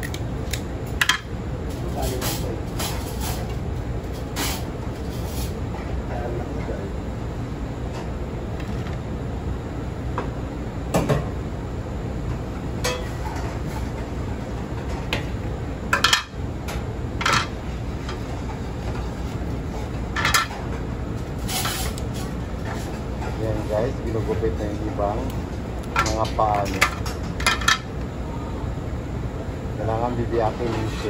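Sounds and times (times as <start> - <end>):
low background hum: 0.0 - 31.0.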